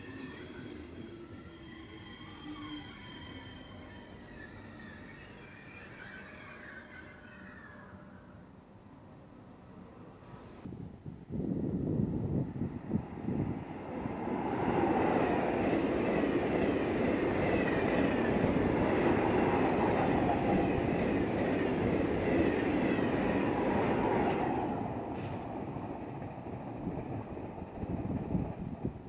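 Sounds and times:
faint high whine: 0.0s - 10.7s
train wheels rumbling on rail: 12.4s - 29.0s.

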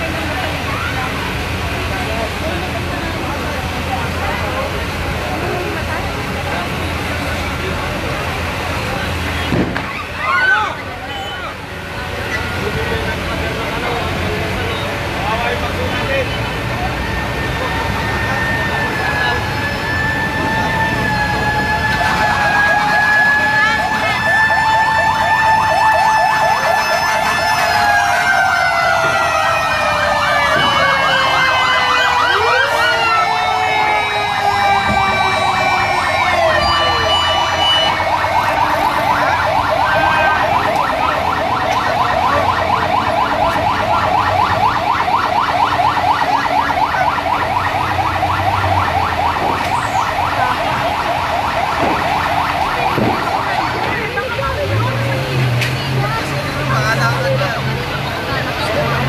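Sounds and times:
fire truck sirens wailing: 0.0s - 59.0s
fast warbling siren yelp: 16.8s - 55.2s.

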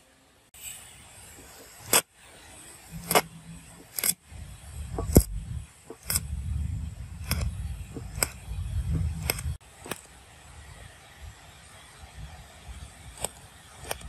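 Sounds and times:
welding arc rumbling: 0.6s - 14.0s
crackling clicks: 1.4s - 2.1s, 2.9s - 4.2s, 4.9s - 6.4s, 7.1s - 10.2s, 13.0s - 14.0s.

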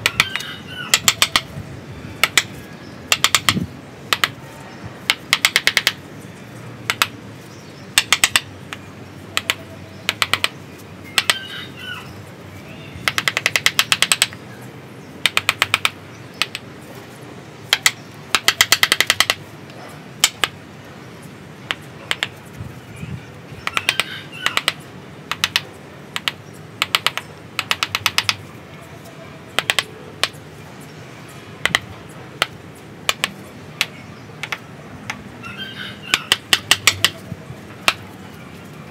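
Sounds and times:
mallet striking chisel into wood: 0.0s - 1.5s, 2.2s - 2.5s, 3.1s - 4.4s, 5.1s - 6.0s, 6.9s - 7.2s, 8.0s - 8.5s, 9.4s - 10.5s, 13.0s - 14.4s, 15.2s - 16.6s, 17.7s - 19.4s, 20.2s - 20.6s, 23.6s - 25.6s, 26.2s - 28.4s, 29.6s - 30.4s, 31.6s - 34.6s, 36.1s - 37.2s, 37.8s - 38.0s.

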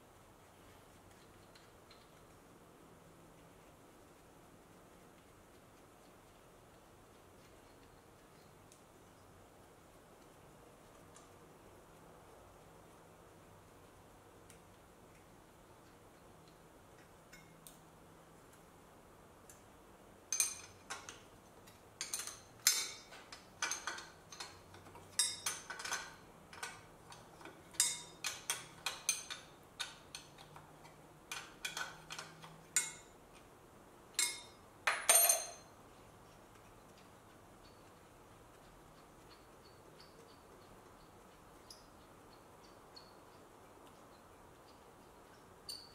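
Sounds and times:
hand tools clinking on metal: 34.2s - 35.7s.

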